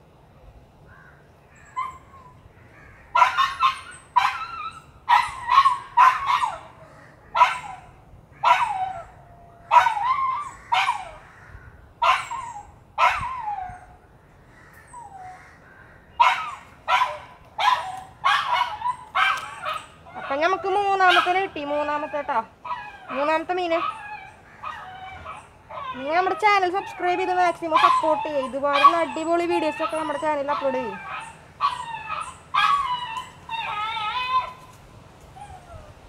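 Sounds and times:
dog barking and yelping: 3.1 - 11.2, 12.0 - 14.0, 16.2 - 34.7.

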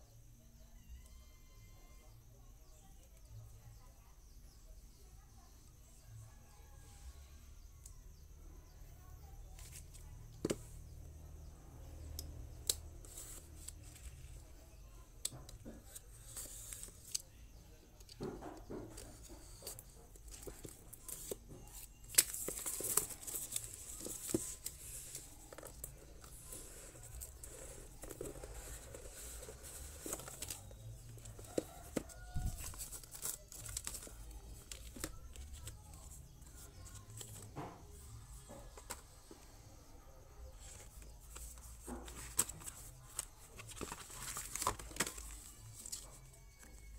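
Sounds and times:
plastic tearing and rustling: 41.9 - 46.7.

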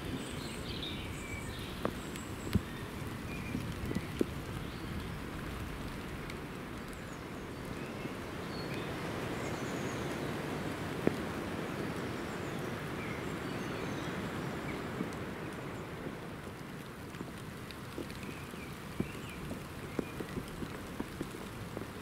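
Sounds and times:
steady rain in woodland: 0.0 - 22.0.

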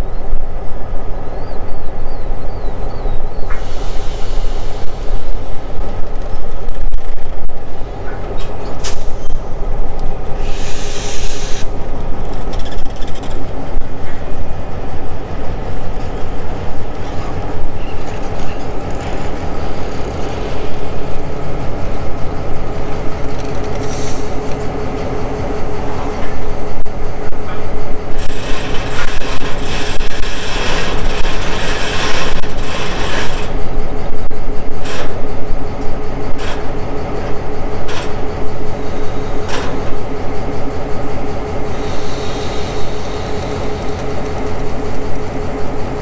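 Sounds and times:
diesel locomotive engine rumble: 0.0 - 46.0
brief hiss: 10.4 - 11.7.

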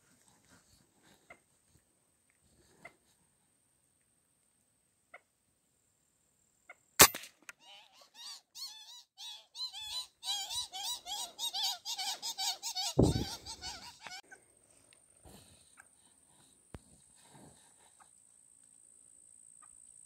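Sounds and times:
rifle shot: 7.0 - 7.4
high squeaky animal calls: 7.6 - 14.3
low thump: 13.0 - 13.5.

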